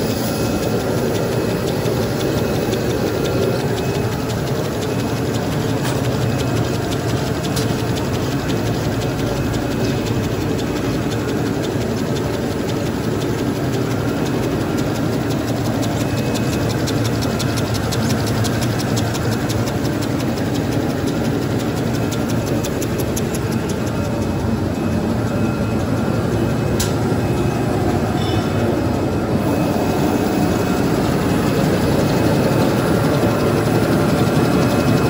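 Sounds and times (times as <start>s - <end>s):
machine rollers clattering: 0.0s - 35.0s
rapid fine ticking: 0.2s - 27.7s.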